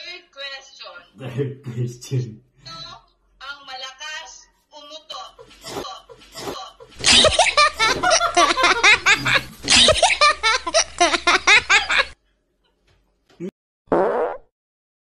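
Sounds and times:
woman laughing loudly: 5.4s - 12.2s.

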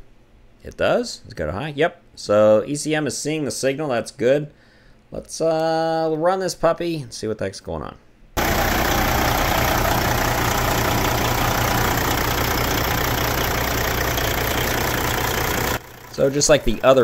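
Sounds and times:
diesel engine idling: 8.4s - 17.0s.

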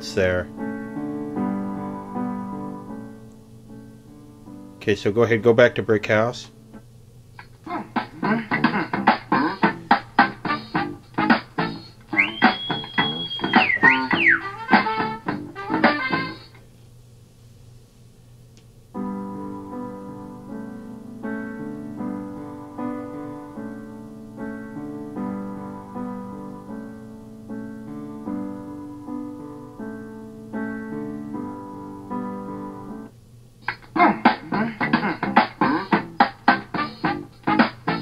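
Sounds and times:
electric piano chords: 0.0s - 6.8s, 7.6s - 16.6s, 18.9s - 33.2s
music with punchy beat: 7.9s - 16.4s, 34.2s - 38.0s.

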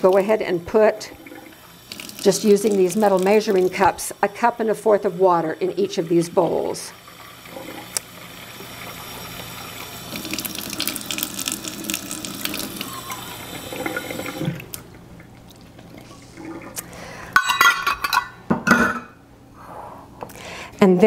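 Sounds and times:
water running from a tap: 0.0s - 14.9s
metal cups clinking: 17.4s - 19.2s.

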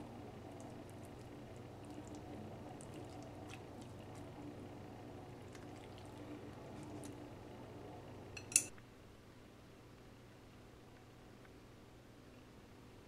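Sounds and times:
steady low hum: 0.0s - 13.0s
chopsticks stirring noodles in bowl: 0.5s - 4.4s, 5.4s - 7.2s.

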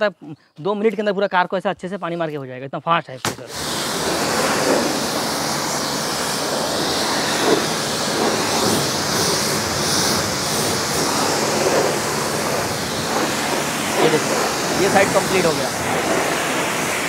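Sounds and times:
pressure washer spray hissing: 3.3s - 17.0s.

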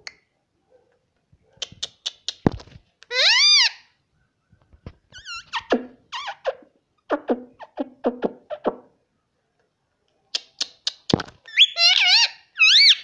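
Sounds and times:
parrot chirping and whistling: 11.5s - 13.0s.

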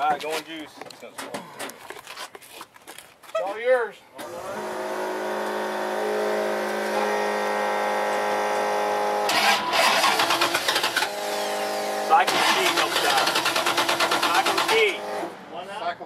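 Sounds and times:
starter cranking engine: 9.3s - 11.5s, 12.2s - 15.0s.

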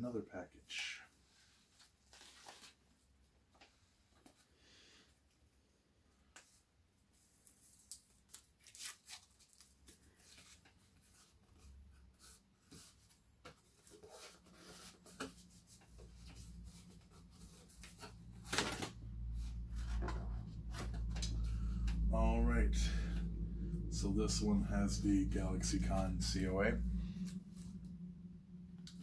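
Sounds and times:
cardboard envelope tearing: 7.4s - 10.6s
low rumble: 16.0s - 29.0s.

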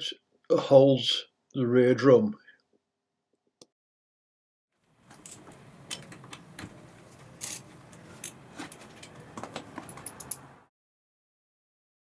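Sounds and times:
metallic clicks and taps: 9.0s - 10.5s.

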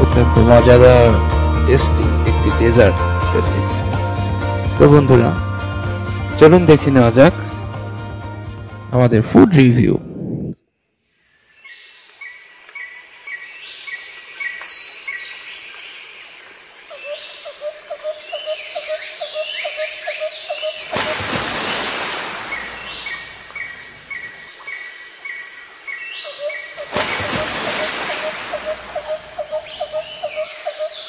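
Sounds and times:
birds chirping: 11.2s - 31.0s.

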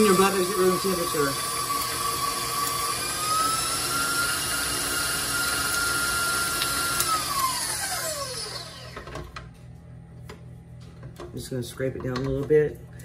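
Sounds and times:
stand mixer motor whine: 0.0s - 9.4s.

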